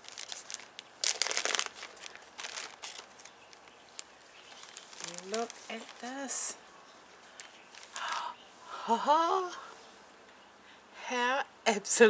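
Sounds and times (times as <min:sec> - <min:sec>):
plastic bag crinkling: 0:00.0 - 0:06.6, 0:07.2 - 0:08.3.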